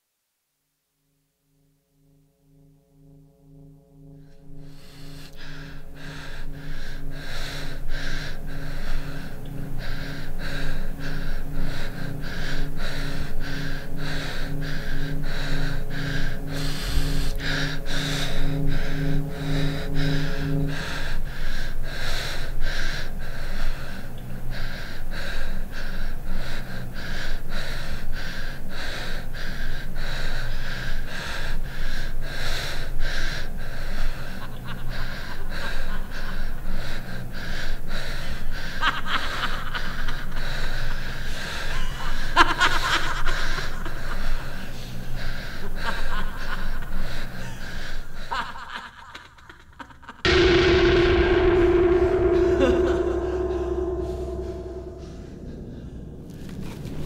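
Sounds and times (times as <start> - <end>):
man breathing heavily: 4.6 - 38.8, 43.4 - 48.3.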